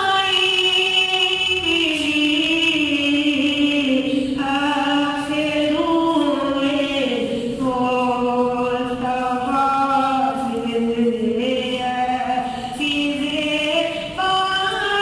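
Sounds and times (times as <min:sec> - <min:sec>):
boy singing unaccompanied: 0:00.0 - 0:15.0.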